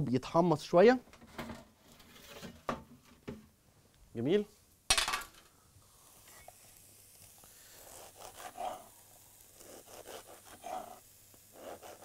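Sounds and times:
knife sawing through bread: 7.8 - 8.9, 9.6 - 12.0.

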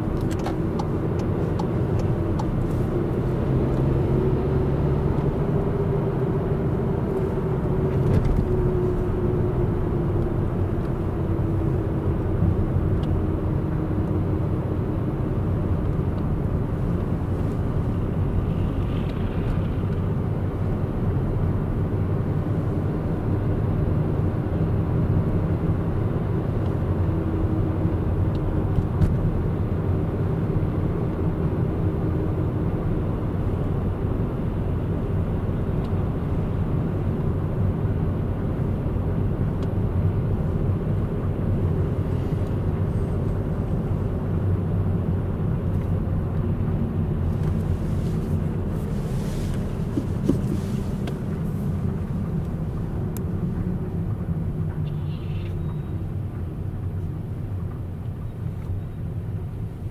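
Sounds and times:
car engine hum: 0.0 - 59.9
tyre rumble on road: 47.3 - 52.7.

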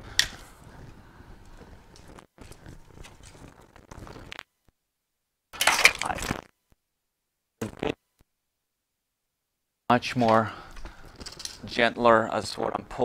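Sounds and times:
wires rustling: 0.0 - 4.5, 5.5 - 6.6, 10.0 - 12.6
plastic crackling and crunching: 1.6 - 4.5, 5.6 - 6.5.

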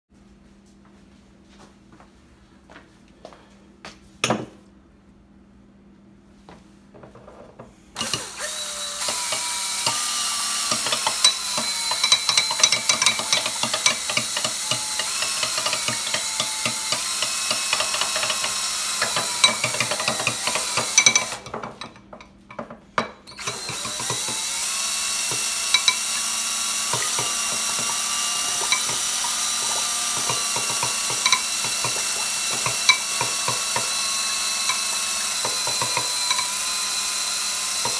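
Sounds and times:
drill motor whine: 8.0 - 21.5, 23.3 - 37.9
spoon rattling in glass bowl: 10.8 - 16.8, 19.1 - 22.2, 25.7 - 26.1, 28.6 - 29.6, 30.2 - 33.4.

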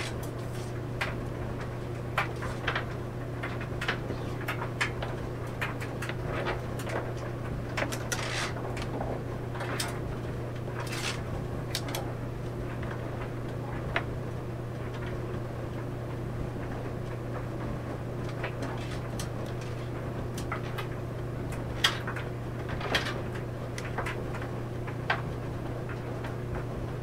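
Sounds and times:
clothes dryer humming: 0.0 - 27.0.

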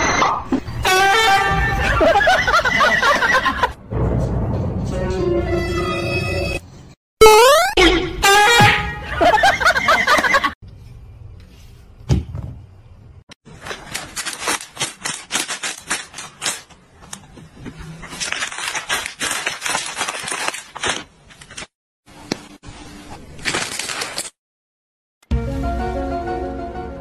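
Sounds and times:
person laughing: 9.1 - 10.6
plastic packaging crinkling: 13.5 - 16.8, 18.0 - 21.7, 23.3 - 24.4.

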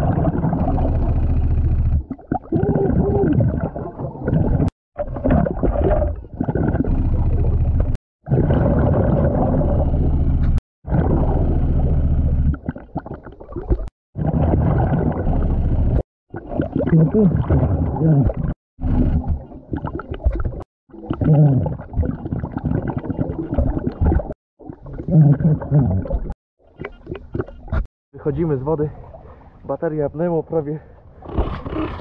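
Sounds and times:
gurgling exhalation bubbles: 0.0 - 1.0, 2.0 - 7.6, 8.2 - 10.1, 10.9 - 15.5, 16.3 - 26.4, 31.2 - 32.0.

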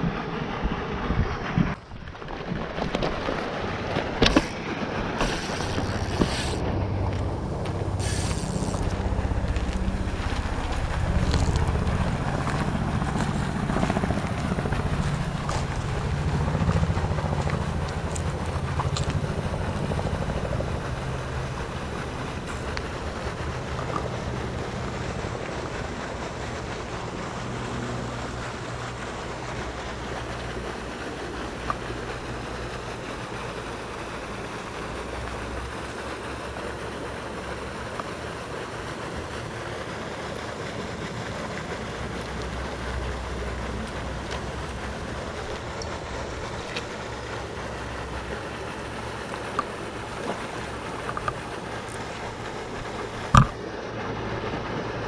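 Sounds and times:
wind buffeting microphone: 3.6 - 31.0.

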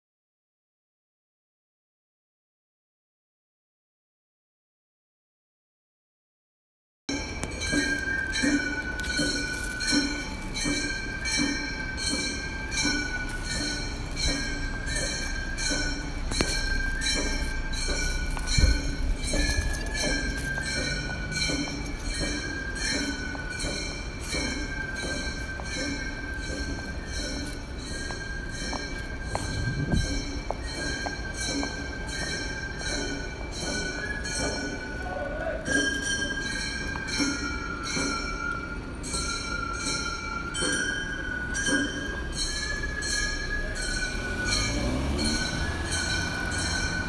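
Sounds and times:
chime-like notes: 7.1 - 47.0
sustained high tones: 7.1 - 47.0
low rumble: 29.3 - 30.6.

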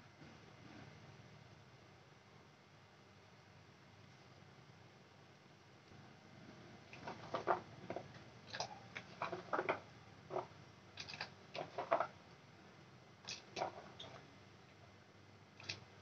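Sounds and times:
boiling water: 6.1 - 16.0.

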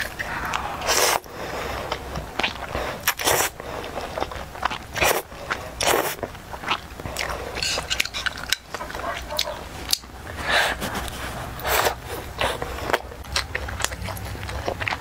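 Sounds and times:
noodle slurping: 0.0 - 9.6
chewing and mouth sounds: 0.0 - 15.0.

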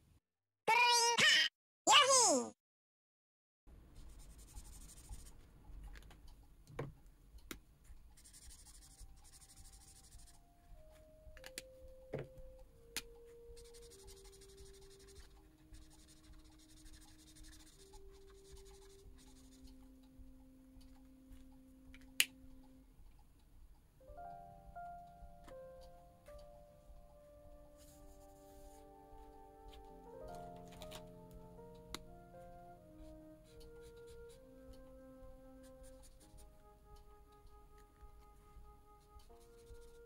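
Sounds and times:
drawing tool scratching paper: 4.0 - 5.3, 8.2 - 10.4, 13.6 - 19.7
soft descending background notes: 24.0 - 40.0.

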